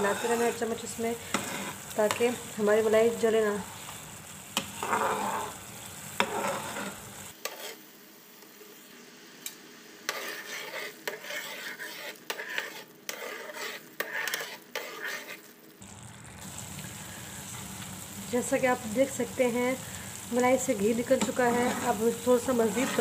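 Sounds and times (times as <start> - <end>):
spoon scraping and stirring: 0.0 - 3.2, 3.8 - 7.8, 10.1 - 15.5, 20.1 - 23.0
cream bubbling and sizzling in pan: 0.0 - 23.0.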